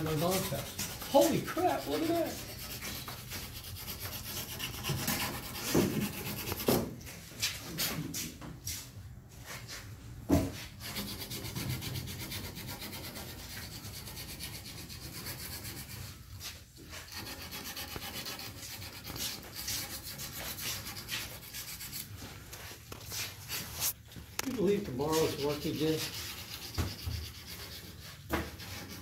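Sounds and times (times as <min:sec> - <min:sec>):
rubbing scraping noise: 0:00.0 - 0:09.9, 0:10.5 - 0:29.0.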